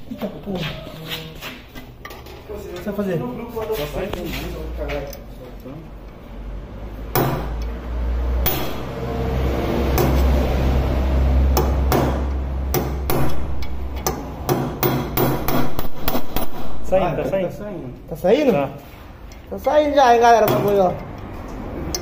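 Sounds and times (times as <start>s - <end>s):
hammer striking metal: 7.1s - 7.7s, 8.4s - 9.2s, 9.8s - 10.5s, 11.5s - 16.9s.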